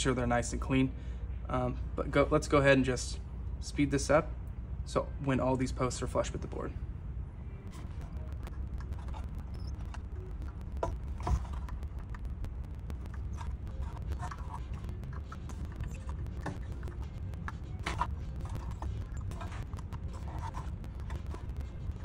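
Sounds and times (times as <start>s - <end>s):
steady low hum: 0.0s - 22.0s
circuit board clicks and rustles: 7.7s - 22.0s.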